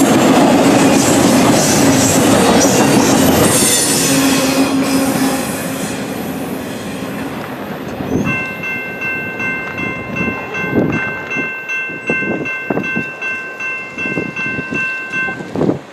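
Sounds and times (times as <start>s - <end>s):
electronic crossing bell ringing: 8.2s - 15.6s.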